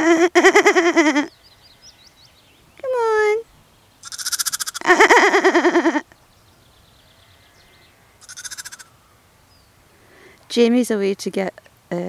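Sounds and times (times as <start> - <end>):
lamb bleating: 4.0 - 4.8, 8.2 - 8.9.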